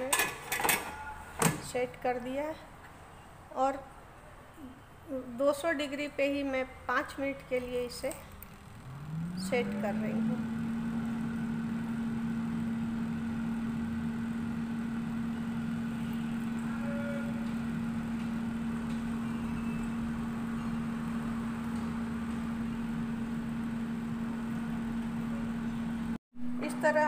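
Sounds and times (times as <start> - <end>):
air fryer fan humming: 7.2 - 27.0.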